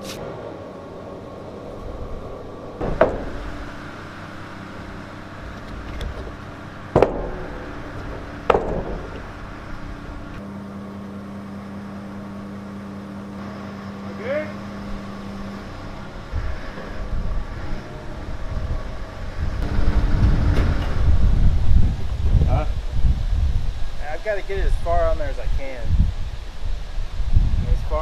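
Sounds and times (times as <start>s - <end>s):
low mechanical hum: 0.0s - 28.0s
loud ringing bangs: 2.8s - 5.6s, 6.2s - 10.4s.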